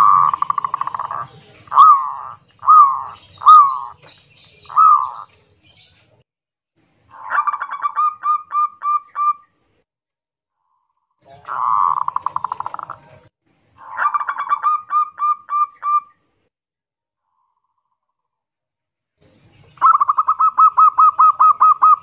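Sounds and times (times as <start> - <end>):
dove cooing: 0.0 - 5.4, 11.3 - 13.2, 19.8 - 22.0.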